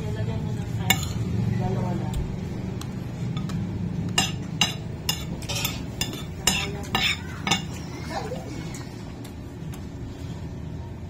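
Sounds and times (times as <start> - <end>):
steady low hum: 0.0 - 11.0
cutlery clinking against plate: 0.9 - 1.2, 3.3 - 7.8.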